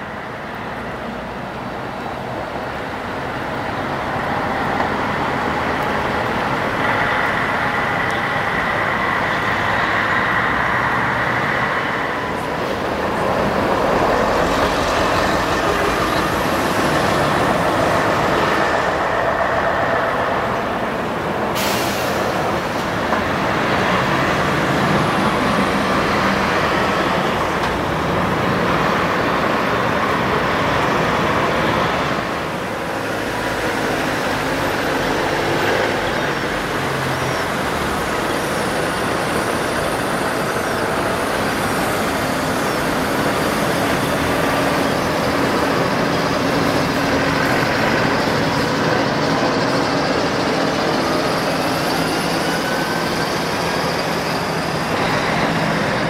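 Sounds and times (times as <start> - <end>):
large vehicle engine running: 0.0 - 56.0
air brakes hissing: 21.5 - 22.6.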